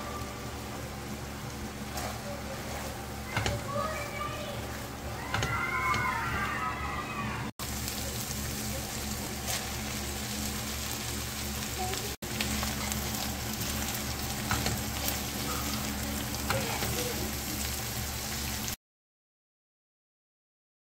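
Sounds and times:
food sizzling in frying pan: 0.0 - 6.6, 7.6 - 18.8
spatula scraping pan: 1.8 - 4.0.

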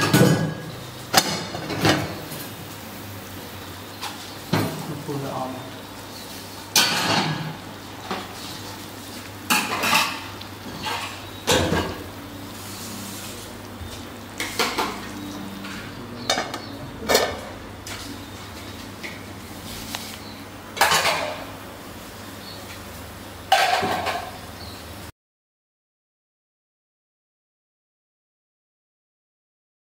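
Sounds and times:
gas burner hissing: 0.0 - 25.1.

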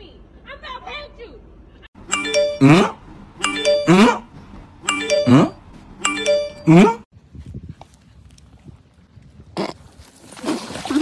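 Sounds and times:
bright doorbell-like chime: 2.1 - 2.8, 3.4 - 4.0, 4.9 - 6.7.

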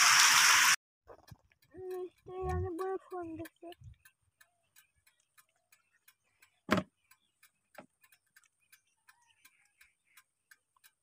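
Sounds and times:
faint regular ticking: 1.1 - 11.0.

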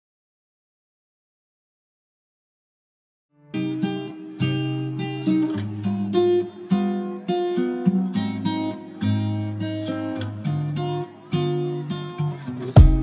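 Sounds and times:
acoustic guitar music: 3.4 - 13.0.

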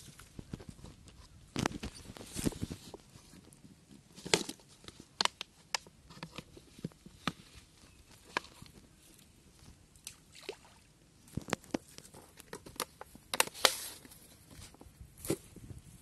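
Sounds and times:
soft scraping and rustling: 0.0 - 5.1.

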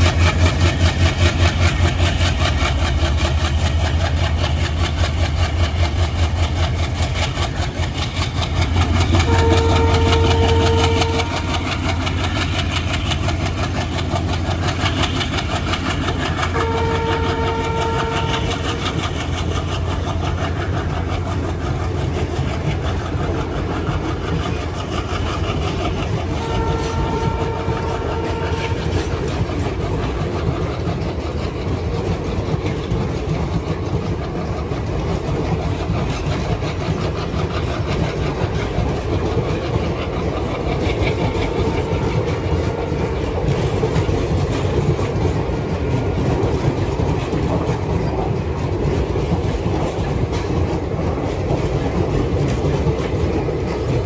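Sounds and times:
diesel locomotive rumble: 0.0 - 54.0
train coaches clattering over rails: 0.0 - 54.0
train horn: 9.2 - 11.9, 16.5 - 18.7, 26.3 - 29.7, 41.3 - 44.0.

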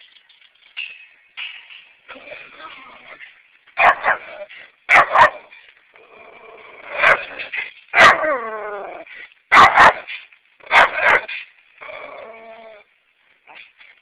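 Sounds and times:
dogs barking: 3.8 - 5.6, 6.9 - 8.3, 9.5 - 11.4.

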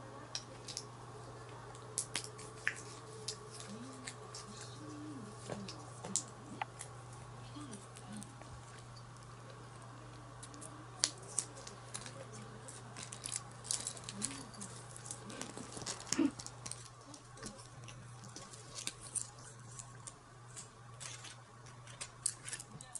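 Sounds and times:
steady low hum: 0.0 - 22.9
blister packs crinkling: 10.4 - 22.9.

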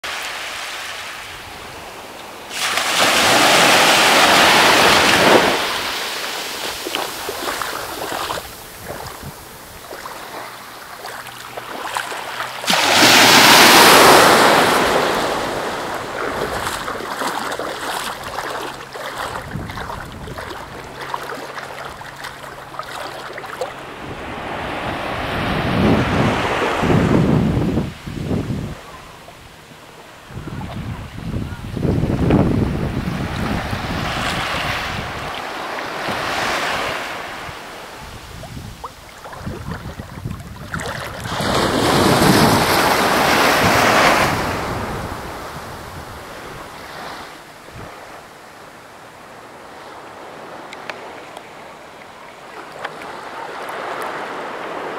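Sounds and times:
waves lapping on beach: 0.0 - 54.9
wind on microphone: 3.2 - 10.4, 12.7 - 23.0, 23.8 - 29.6, 30.2 - 36.4, 37.2 - 47.0, 47.6 - 48.1.

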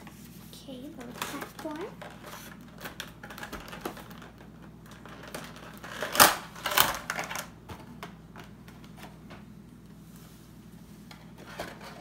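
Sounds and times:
plastic packaging clicks: 1.0 - 9.0
plastic crackling: 1.0 - 9.1.

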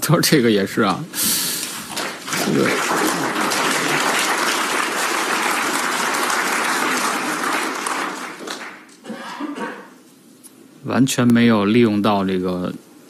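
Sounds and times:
audience applauding: 1.5 - 9.0.

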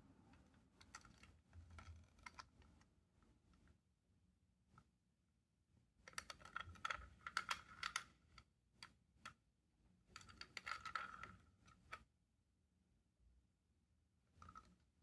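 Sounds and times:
plastic toy train clicking: 0.8 - 2.6, 6.1 - 8.5, 10.2 - 12.0.

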